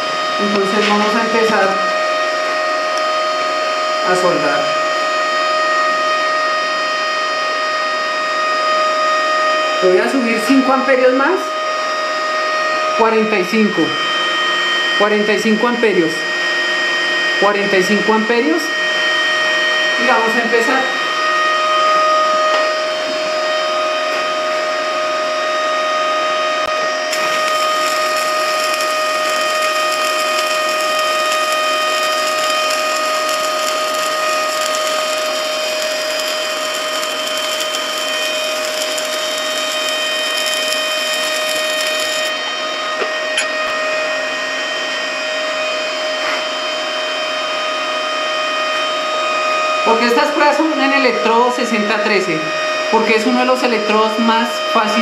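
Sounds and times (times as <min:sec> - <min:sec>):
welding machine whine: 0:00.0 - 0:12.9, 0:13.6 - 0:51.2
welding machine click: 0:27.1 - 0:42.3
welding arc crackling: 0:27.1 - 0:42.4.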